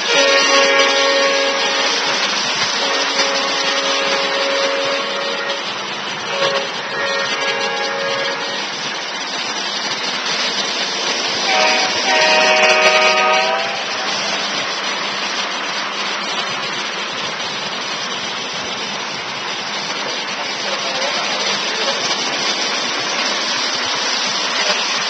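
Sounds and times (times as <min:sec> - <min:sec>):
model train horn blasts: 0:00.0 - 0:08.8, 0:11.4 - 0:14.1
model train wheels rumbling: 0:00.0 - 0:25.0.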